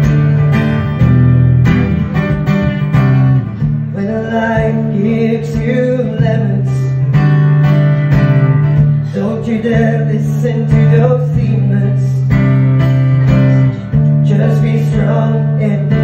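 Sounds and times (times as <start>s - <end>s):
acoustic guitar strumming chords: 0.0s - 16.0s
man singing wordlessly: 3.9s - 7.2s, 8.9s - 12.6s, 13.9s - 16.0s.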